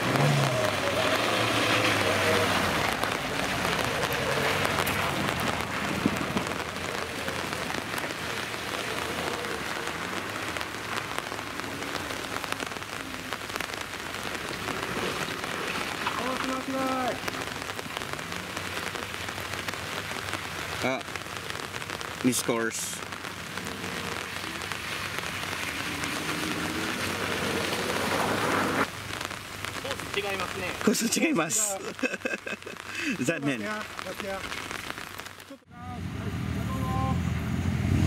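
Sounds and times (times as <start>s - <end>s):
steady rain falling: 0.0s - 37.3s.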